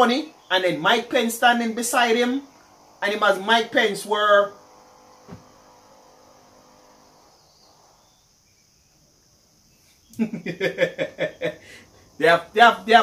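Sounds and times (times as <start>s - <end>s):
man's voice in choppy bursts: 0.0s - 4.6s, 12.2s - 13.0s
faint high hiss: 0.0s - 13.0s.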